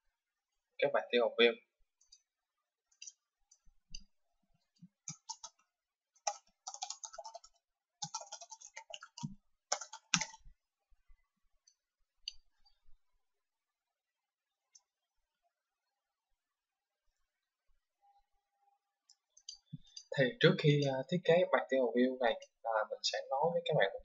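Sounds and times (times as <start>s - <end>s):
faint keyboard typing: 4.7s - 10.5s.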